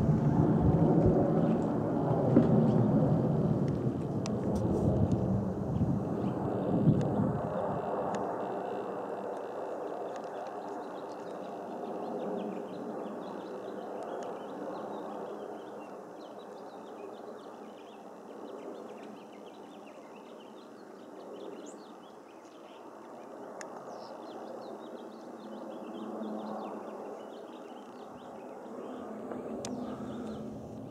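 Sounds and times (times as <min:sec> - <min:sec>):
jet engine rumble: 0:00.0 - 0:16.2, 0:22.8 - 0:30.9
small birds chirping: 0:08.9 - 0:30.9.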